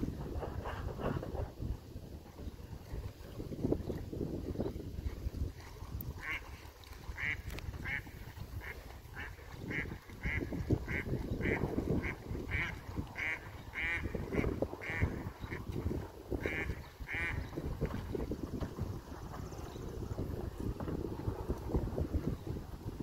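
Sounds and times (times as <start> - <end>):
wind rumble on microphone: 0.0 - 23.0
duck quacking: 7.2 - 15.1, 16.4 - 17.4.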